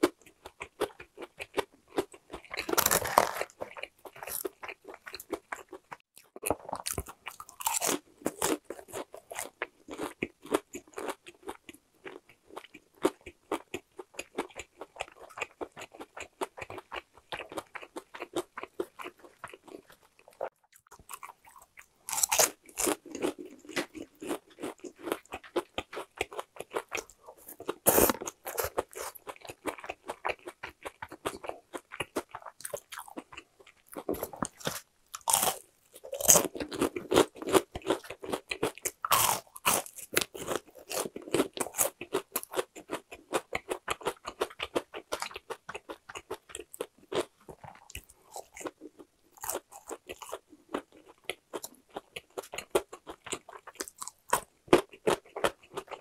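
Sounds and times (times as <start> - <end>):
person chewing crispy chicken: 0.0 - 56.0.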